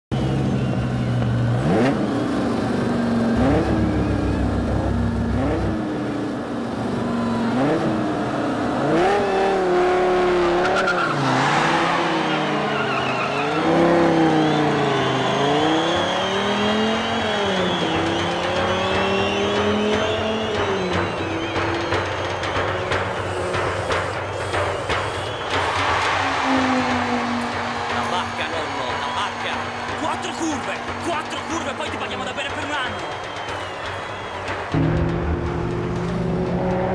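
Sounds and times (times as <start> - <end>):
sports car engine revving: 0.2 - 28.4, 33.2 - 36.9
tyres squealing and skidding: 8.5 - 34.8.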